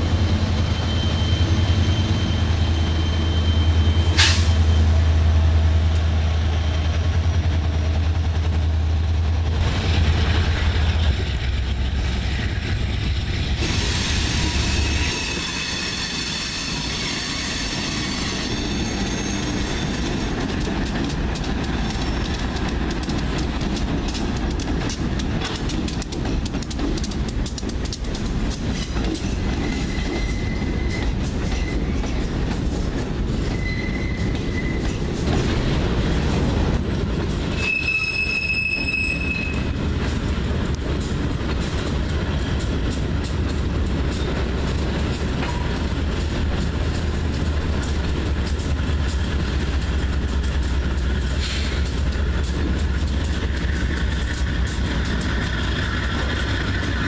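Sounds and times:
train wheels squealing: 0.0 - 7.5, 10.5 - 20.8, 28.7 - 35.4, 37.4 - 39.9, 50.0 - 52.3
freight train rumbling past: 0.0 - 57.0
rail clicks: 0.0 - 57.0.

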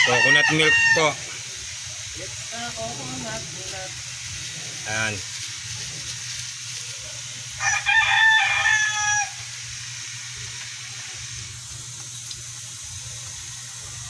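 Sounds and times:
rooster crowing: 0.0 - 1.4, 7.5 - 9.6
faint hiss: 0.0 - 14.0.

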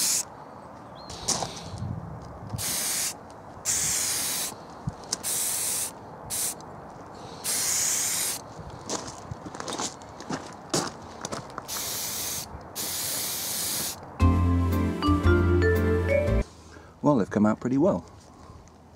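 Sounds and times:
spray paint can hissing: 0.0 - 0.3, 2.6 - 4.6, 5.2 - 6.6, 7.4 - 8.4, 11.7 - 14.0.

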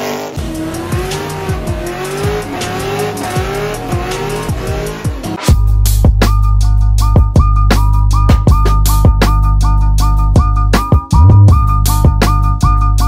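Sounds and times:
car engine revving: 0.0 - 5.5
hip-hop beat: 0.1 - 13.0.

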